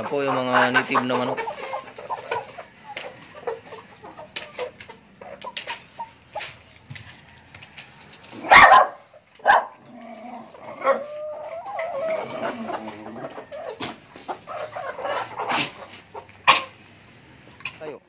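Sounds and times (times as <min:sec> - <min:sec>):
dog yelping: 0:08.4 - 0:09.8, 0:10.7 - 0:12.3.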